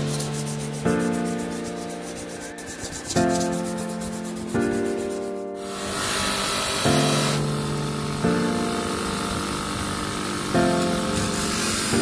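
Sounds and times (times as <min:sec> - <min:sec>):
sandpaper rubbing by hand: 0:00.0 - 0:07.4, 0:10.8 - 0:12.0
background music: 0:00.0 - 0:09.0
bench grinder running: 0:02.7 - 0:12.0.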